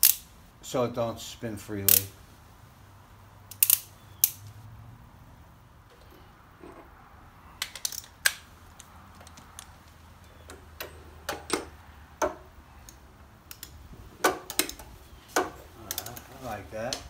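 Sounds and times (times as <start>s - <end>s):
hand tools clicking and knocking: 7.6s - 17.0s.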